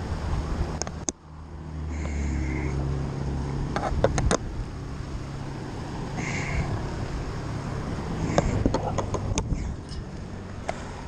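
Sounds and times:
road traffic hum: 0.0 - 11.0.

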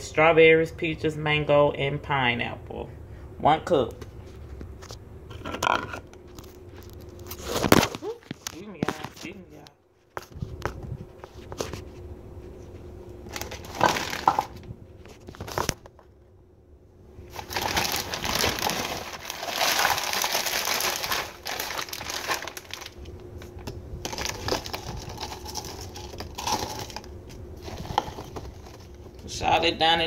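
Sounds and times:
plastic bag crinkling: 13.2 - 15.9, 17.3 - 29.2.

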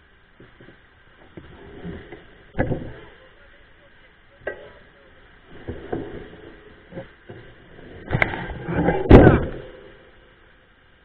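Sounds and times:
mountain bike knocking and rattling: 0.4 - 3.2.

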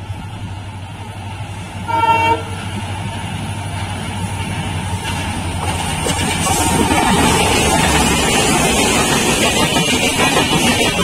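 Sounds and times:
train rumbling: 0.0 - 11.0
locomotive horn blast: 1.9 - 2.6.

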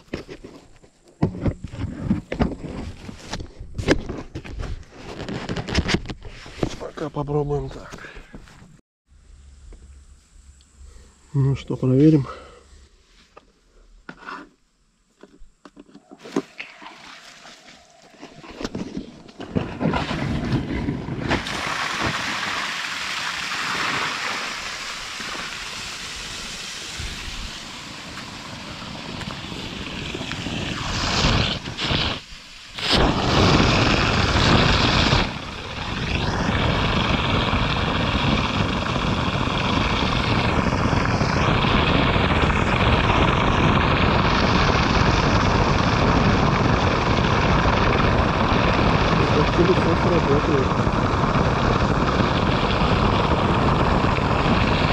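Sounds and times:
suction hose drawing sand: 16.1 - 43.5
pump with loud rush of water: 16.1 - 54.9.

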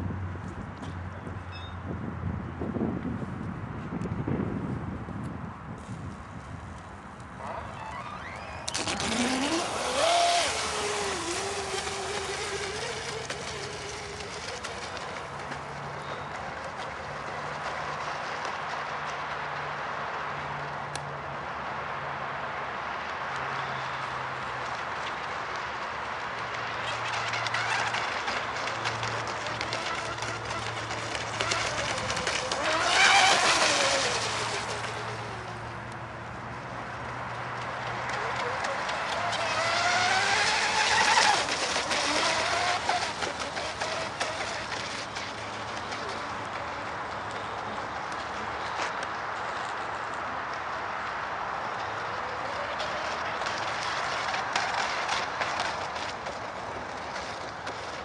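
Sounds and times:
high motor whine: 7.1 - 18.5, 26.8 - 48.5.

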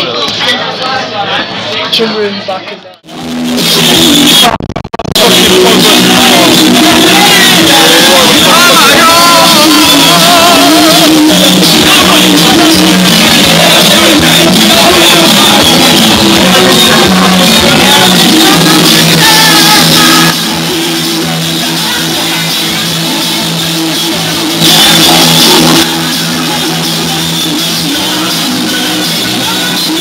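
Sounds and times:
loud dj music over speakers: 3.0 - 30.0.

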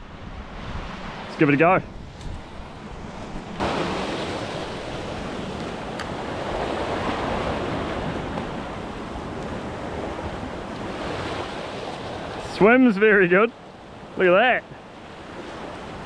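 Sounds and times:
wind on microphone: 0.0 - 12.5
sea surf washing over rocks: 3.5 - 16.0.

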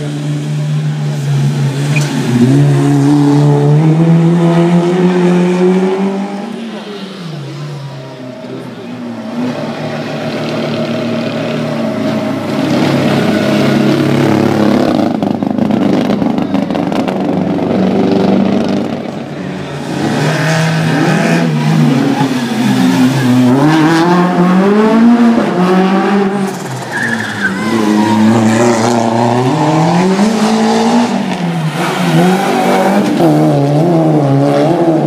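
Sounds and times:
racing car engines: 0.0 - 35.0.

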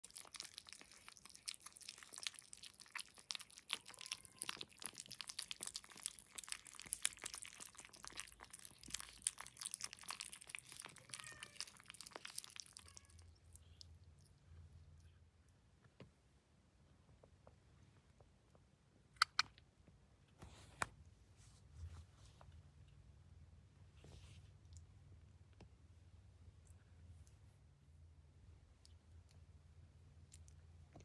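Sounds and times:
kittens eating wet food: 0.0 - 16.2, 24.0 - 31.0.

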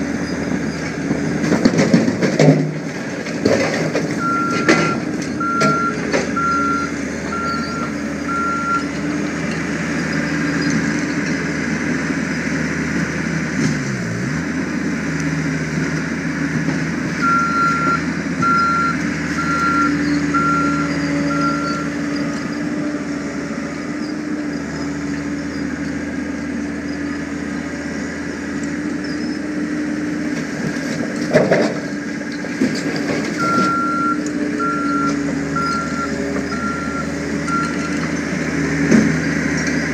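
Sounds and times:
diesel engine running hard: 0.0 - 39.9
backup alarm beeping: 4.2 - 8.8, 17.2 - 21.9.

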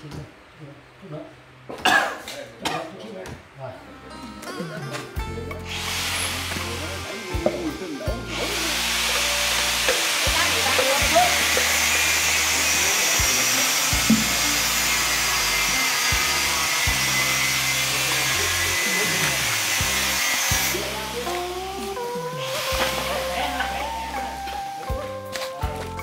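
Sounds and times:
background music with bass line: 3.9 - 26.0
loud steady hiss: 5.4 - 26.0.

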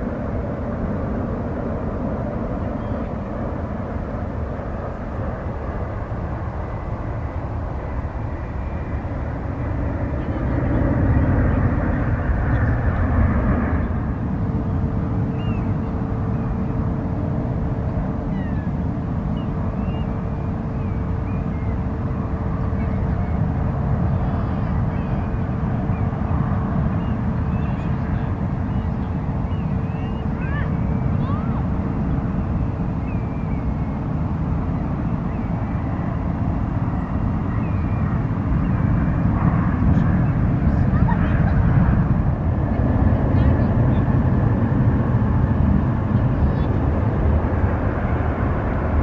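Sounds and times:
jet engines rumbling: 0.0 - 49.0
steady hum tone: 0.0 - 49.0.

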